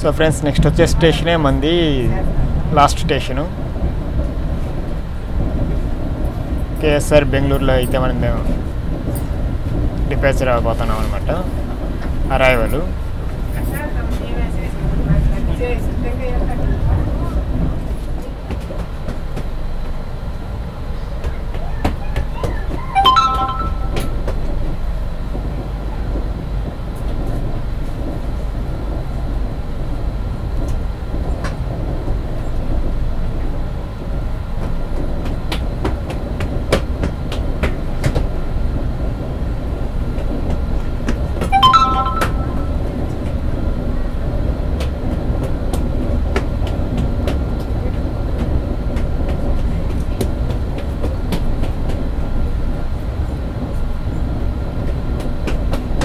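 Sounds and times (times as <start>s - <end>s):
train rumbling on rails: 0.0s - 23.0s, 24.1s - 41.5s, 42.8s - 56.0s
short high tone: 22.9s - 24.3s, 41.5s - 43.1s.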